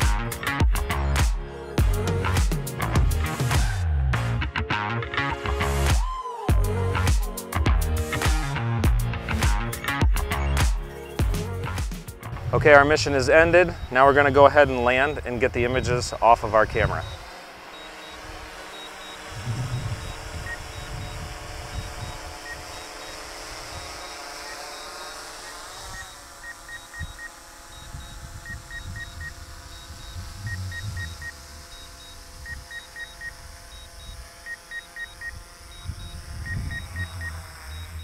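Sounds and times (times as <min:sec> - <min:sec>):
drone propellers whining: 0:00.0 - 0:38.0
short electronic beeps: 0:16.6 - 0:38.0.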